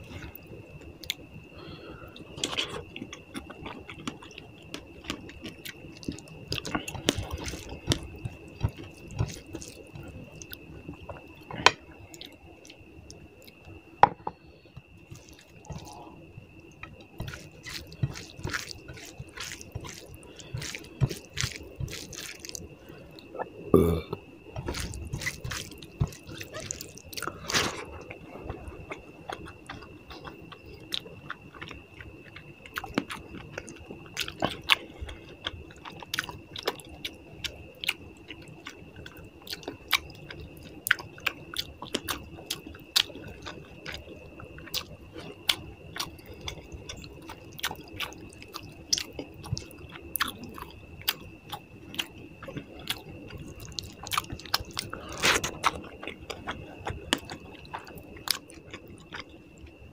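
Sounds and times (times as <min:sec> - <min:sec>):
person chewing food: 0:00.0 - 0:13.7, 0:14.3 - 0:59.9.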